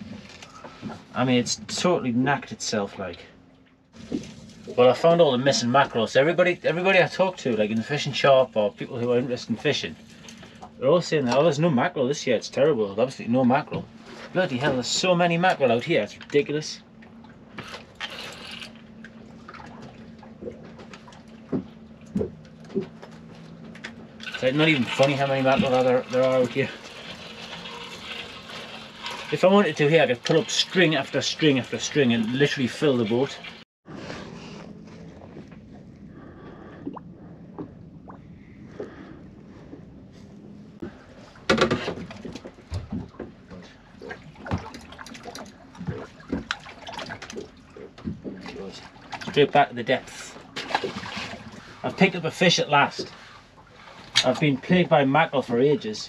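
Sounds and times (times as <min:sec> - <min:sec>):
steady low hum: 0:00.0 - 0:56.0
water lapping against boat hull: 0:00.0 - 0:56.0
handling clatter on boat: 0:19.0 - 0:26.7, 0:40.4 - 0:52.1.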